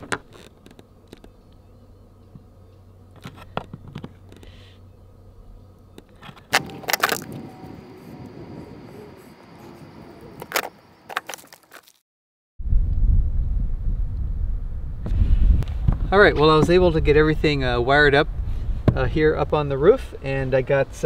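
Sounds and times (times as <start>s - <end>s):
hands handling wires and tools: 6.0s - 7.4s.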